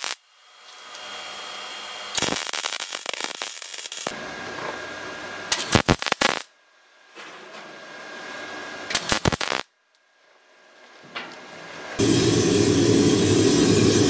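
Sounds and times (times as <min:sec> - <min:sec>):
welding arc crackling: 0:00.0 - 0:04.2, 0:05.5 - 0:06.5, 0:08.9 - 0:09.7, 0:12.0 - 0:14.0.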